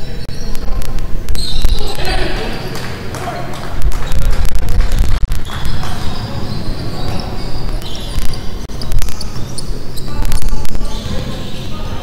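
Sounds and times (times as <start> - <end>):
sneakers squeaking: 0.0 - 12.0.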